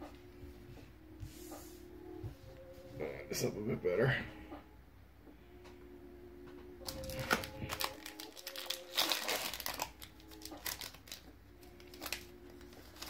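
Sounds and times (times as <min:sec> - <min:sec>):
foil wrapper crinkling: 0:06.8 - 0:13.0.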